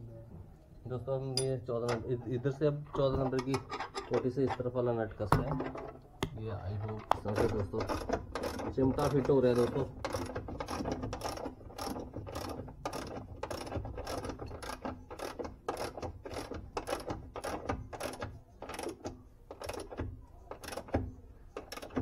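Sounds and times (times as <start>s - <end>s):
ratchet wrench clicking: 7.3s - 21.0s, 21.6s - 22.0s.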